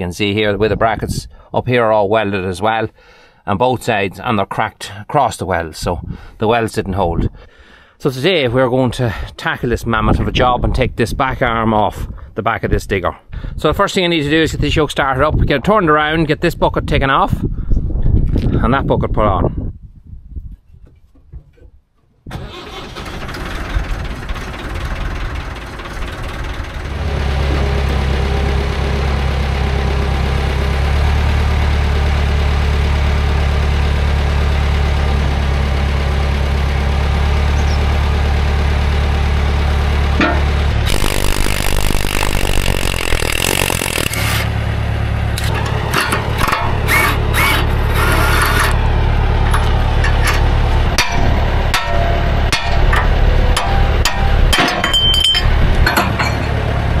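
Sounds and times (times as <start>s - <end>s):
diesel engine starting and running: 22.3s - 57.0s
sharp knocks: 40.2s - 40.5s, 51.0s - 55.0s
hissing: 40.9s - 44.5s.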